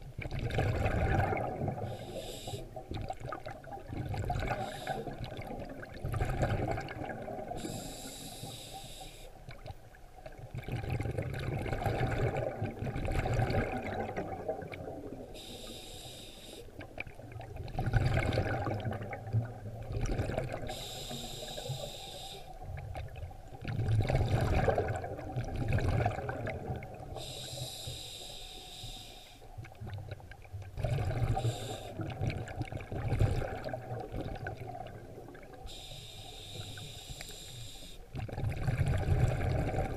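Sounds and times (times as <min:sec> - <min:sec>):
bubbles rushing on exhale: 0:00.2 - 0:02.0, 0:02.8 - 0:07.8, 0:10.3 - 0:15.3, 0:16.8 - 0:20.8, 0:22.6 - 0:27.2, 0:29.8 - 0:35.6, 0:38.2 - 0:39.9
regulator hiss on inhale: 0:01.9 - 0:02.8, 0:04.5 - 0:05.2, 0:07.6 - 0:09.4, 0:15.4 - 0:16.8, 0:20.7 - 0:22.6, 0:27.2 - 0:29.6, 0:31.3 - 0:32.1, 0:35.7 - 0:38.1.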